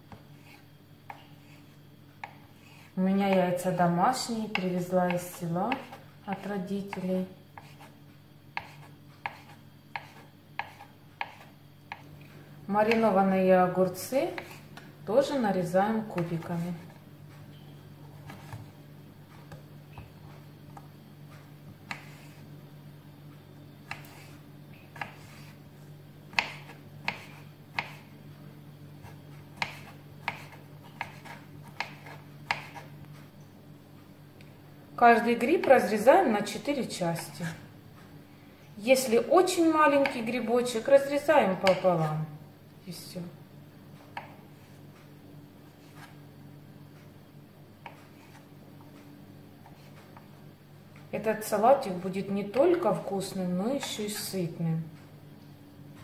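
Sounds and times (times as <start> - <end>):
faint low hum: 0.0 - 56.0
knife chopping on wooden board: 4.5 - 7.0, 7.6 - 7.9, 8.6 - 12.0, 26.3 - 28.1, 29.1 - 32.9, 41.6 - 41.9.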